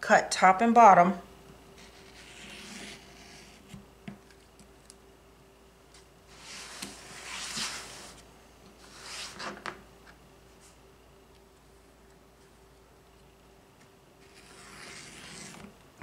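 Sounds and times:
cutting mat sliding on table: 6.3s - 8.2s, 14.2s - 15.7s.

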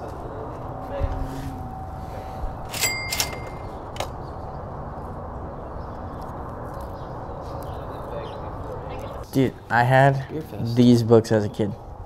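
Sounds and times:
outdoor background noise: 0.0s - 12.0s
sharp clicks with metallic ring: 2.7s - 4.1s.

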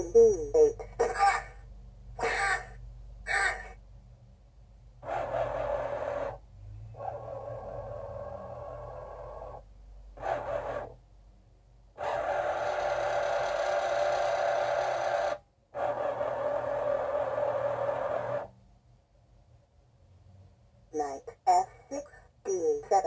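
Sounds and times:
chess board motors whirring: 5.0s - 6.4s, 10.2s - 11.0s, 12.0s - 18.6s.

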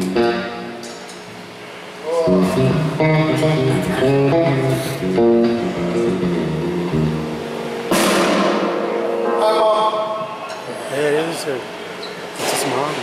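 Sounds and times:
metal band playing live: 2.2s - 9.5s
cymbal crash: 7.4s - 9.4s.

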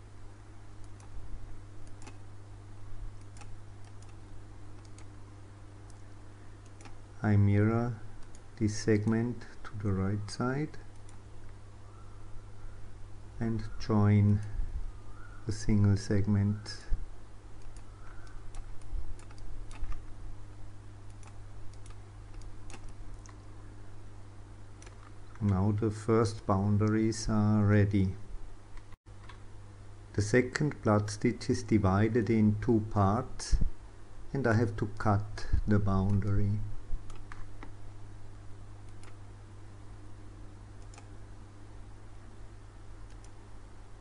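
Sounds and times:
steady low hum: 0.0s - 44.0s
computer mouse clicking: 0.8s - 1.2s, 1.8s - 2.2s, 3.2s - 4.2s, 4.8s - 5.2s, 6.6s - 7.0s, 10.9s - 11.2s, 17.6s - 20.1s, 21.1s - 23.4s, 24.8s - 25.6s, 37.1s - 37.7s, 38.9s - 39.2s, 40.8s - 41.1s, 43.0s - 43.4s.

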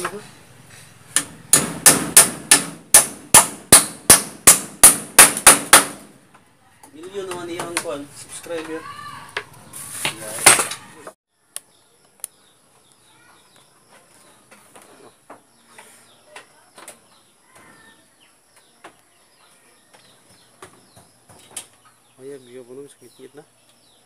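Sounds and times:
faint bird chirps: 11.3s - 24.0s.

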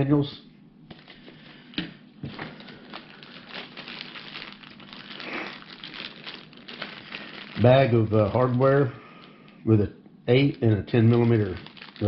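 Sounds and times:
plastic bag crinkling: 0.9s - 9.7s, 10.3s - 12.0s
paper being handled: 10.3s - 12.0s.

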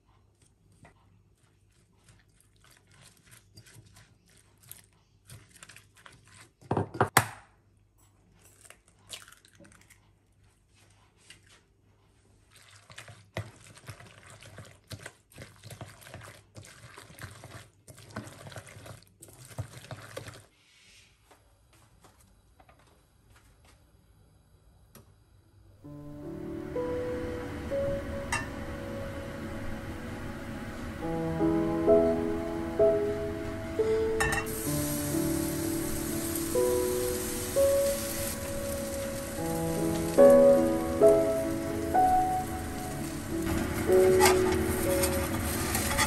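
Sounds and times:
wet rustling of cabbage: 1.4s - 6.7s.

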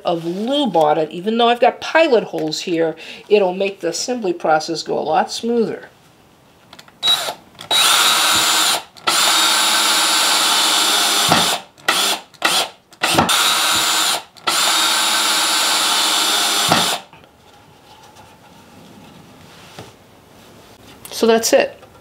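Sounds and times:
power drill driving screws into wood: 7.0s - 17.1s.

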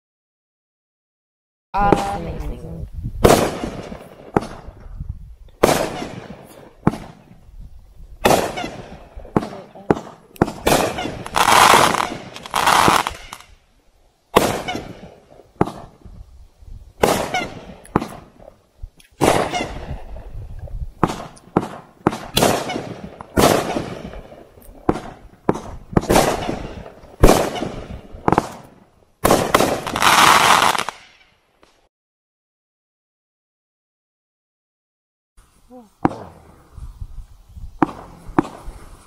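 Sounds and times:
firework shots banging: 3.2s - 5.0s, 5.6s - 7.4s, 8.2s - 13.5s, 14.3s - 16.1s, 17.0s - 20.1s, 21.0s - 31.3s, 36.0s - 36.6s, 37.8s - 39.0s
firework crackling: 3.2s - 31.8s, 35.4s - 39.0s.

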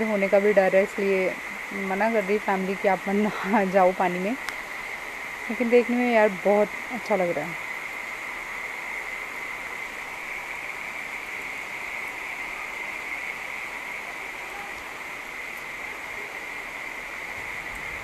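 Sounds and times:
rain falling steadily: 0.0s - 18.0s.

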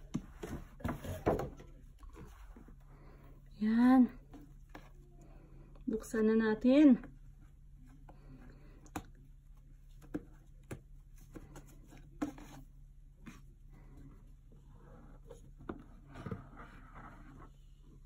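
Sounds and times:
box scuffing: 0.0s - 1.7s.

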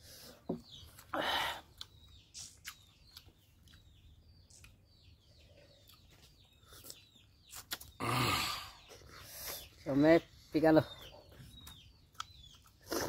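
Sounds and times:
faint bird chirps: 0.0s - 13.0s
chewing and mouth smacks: 1.7s - 4.9s, 5.7s - 8.0s, 11.5s - 13.0s.

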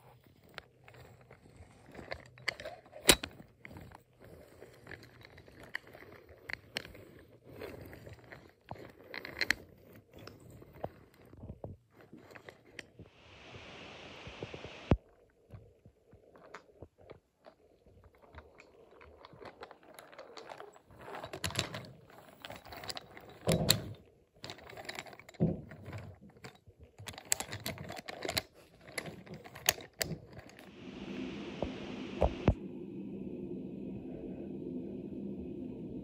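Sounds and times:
steady hiss: 13.1s - 15.0s, 30.7s - 36.0s
wooden toy trains clacking: 16.2s - 30.7s
low steady hum: 17.5s - 36.0s.

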